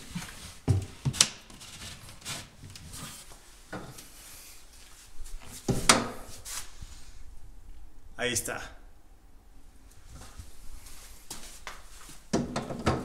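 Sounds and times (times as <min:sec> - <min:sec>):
wooden cabinet knocking and rubbing: 0:12.3 - 0:13.0.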